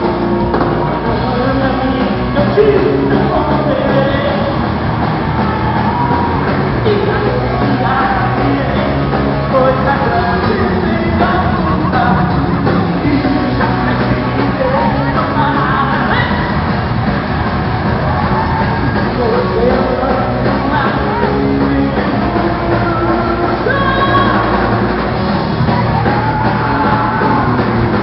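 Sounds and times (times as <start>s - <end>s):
person singing: 0.0s - 4.8s, 5.4s - 16.6s, 18.6s - 25.0s, 25.6s - 28.0s
electric guitars: 0.0s - 28.0s
rock band playing: 0.0s - 28.0s.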